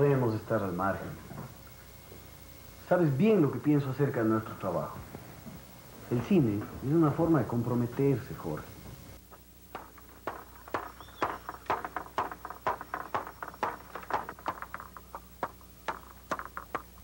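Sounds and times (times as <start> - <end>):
sharp ringing knocks: 9.7 - 16.8.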